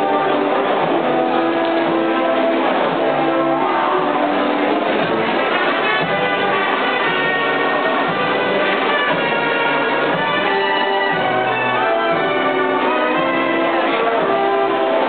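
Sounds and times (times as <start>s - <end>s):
live band playing a waltz: 0.0s - 15.0s.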